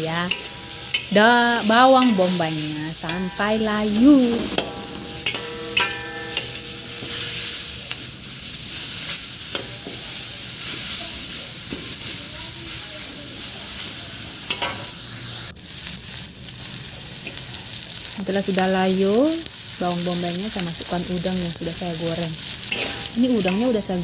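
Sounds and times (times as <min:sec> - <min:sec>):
onions sizzling in oil: 0:00.0 - 0:24.0
ringing metallic clank: 0:00.2 - 0:01.3, 0:03.0 - 0:08.8, 0:22.7 - 0:23.7
metal spatula scraping pan: 0:00.2 - 0:10.0, 0:22.4 - 0:23.8
spatula clanking on pan: 0:00.2 - 0:10.9, 0:14.5 - 0:15.0, 0:22.6 - 0:24.0.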